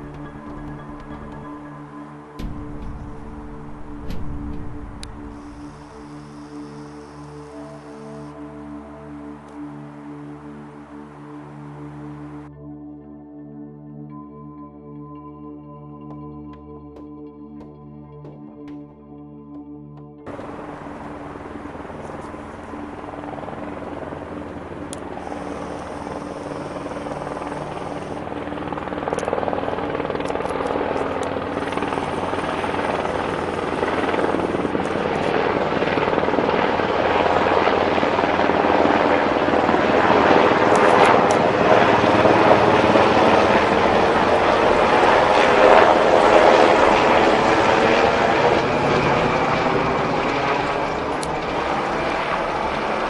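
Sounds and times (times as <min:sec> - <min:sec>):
helicopter rotor and engine: 0:00.0 - 0:12.5, 0:20.3 - 0:53.0.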